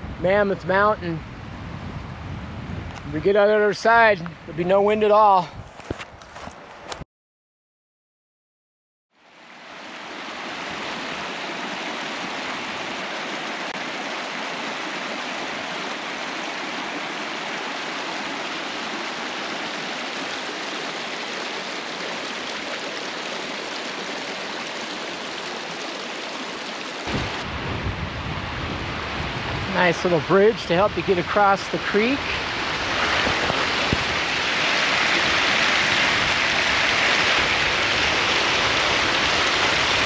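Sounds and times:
creek rushing over rocks: 0:09.2 - 0:40.0.

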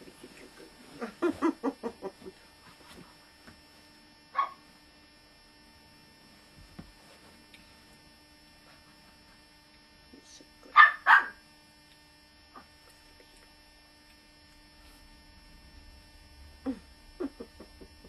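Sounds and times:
dog barking: 0:04.4 - 0:04.6, 0:10.8 - 0:11.4.

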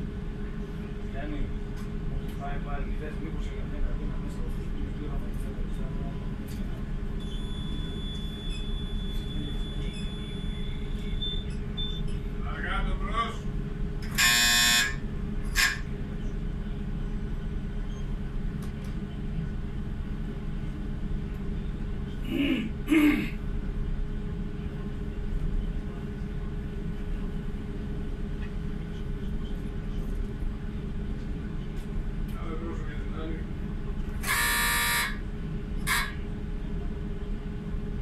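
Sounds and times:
ship engines humming: 0:13.4 - 0:17.0, 0:33.6 - 0:36.9.

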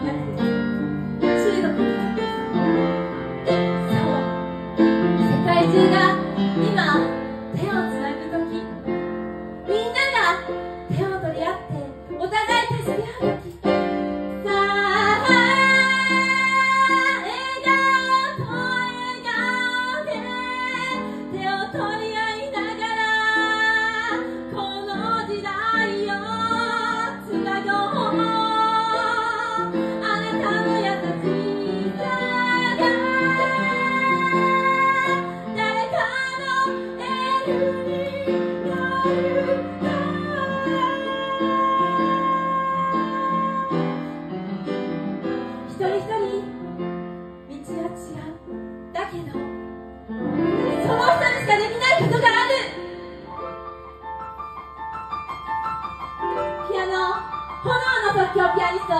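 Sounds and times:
woman singing with vibrato: 0:14.5 - 0:44.0, 0:50.6 - 0:52.8, 0:56.6 - 0:58.9.

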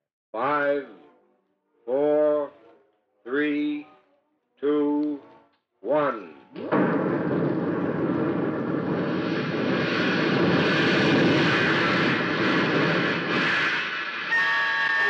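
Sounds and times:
rocket igniting and lifting off: 0:06.6 - 0:15.0.

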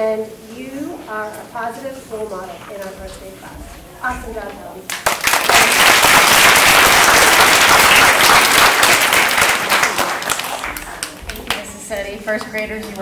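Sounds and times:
children clapping: 0:04.9 - 0:13.0.

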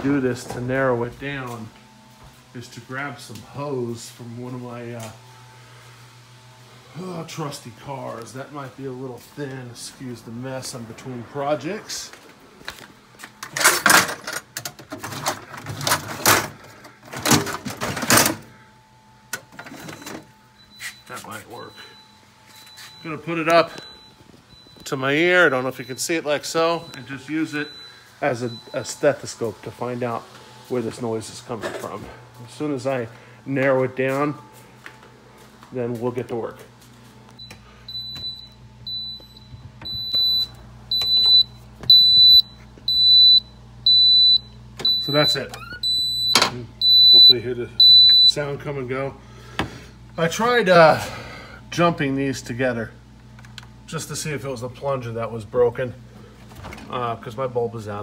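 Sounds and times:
tools clattering and scraping: 0:12.7 - 0:18.5
refrigerator door alarm beeping: 0:13.4 - 0:30.2, 0:37.4 - 0:48.8.

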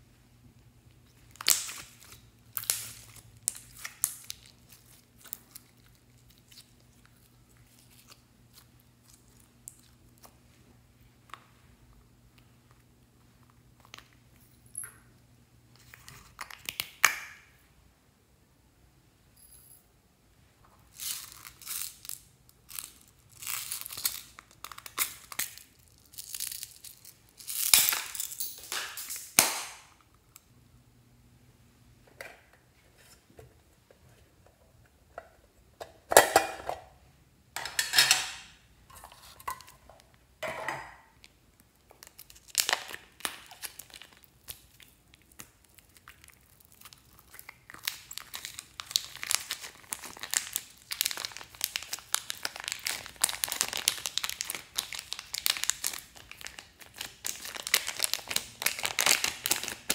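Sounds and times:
plastic bag crinkling: 0:20.9 - 0:29.4, 0:41.8 - 0:59.9.

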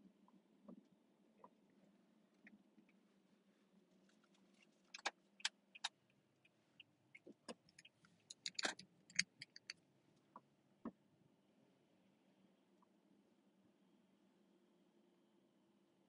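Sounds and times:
faint low hum: 0:00.0 - 0:16.0
small clicks and taps: 0:07.2 - 0:10.4.

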